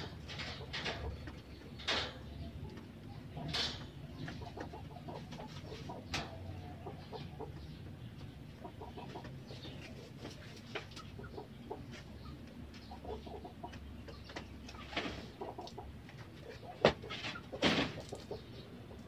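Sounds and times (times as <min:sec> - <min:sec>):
chickens clucking: 0:00.0 - 0:19.0
wooden cage knocks and scrapes: 0:16.8 - 0:18.3.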